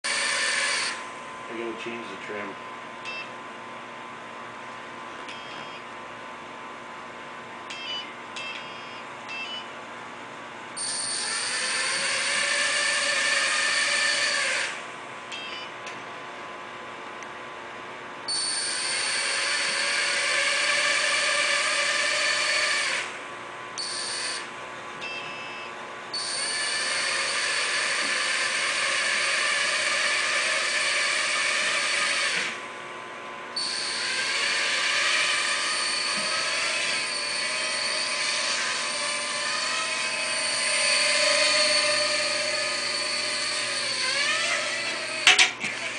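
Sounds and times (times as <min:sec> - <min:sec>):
toy drone motors whining: 0:00.1 - 0:01.0, 0:10.8 - 0:14.8, 0:18.4 - 0:23.1, 0:26.2 - 0:32.6, 0:33.6 - 0:45.9.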